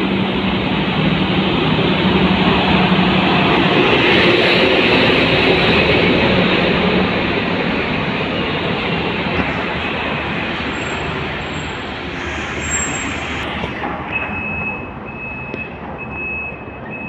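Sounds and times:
bus engine and tyre noise: 0.0s - 17.0s
electronic warning beep: 14.1s - 17.0s.

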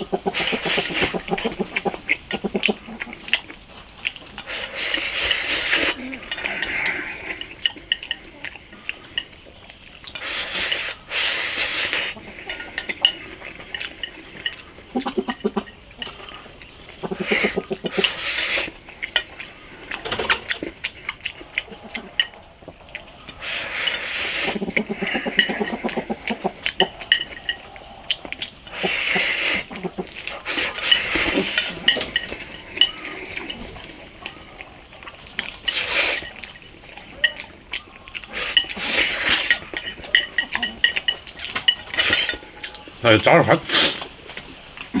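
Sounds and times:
person slurping food: 0.0s - 3.5s, 4.4s - 8.1s, 10.1s - 22.4s, 23.3s - 34.1s, 35.4s - 36.6s, 38.2s - 40.9s, 43.6s - 44.1s
chopsticks clicking against bowl: 0.0s - 10.9s, 18.8s - 42.9s
low hums of enjoyment: 0.0s - 43.1s
chewing: 0.0s - 45.0s.

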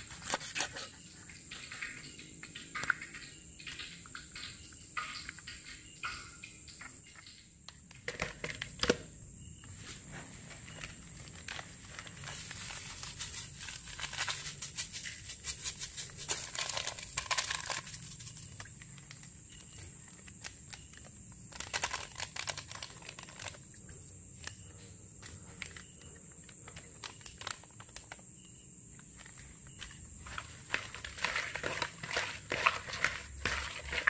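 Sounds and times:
plastic packet crinkling: 10.6s - 23.8s, 25.6s - 28.2s, 29.1s - 34.0s.

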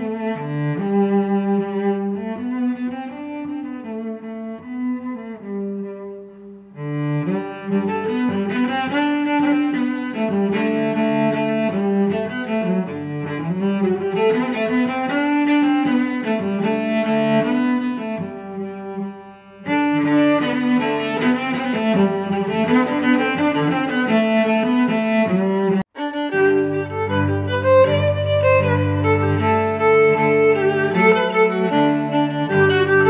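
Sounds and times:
instrumental music with held notes: 0.0s - 33.0s.

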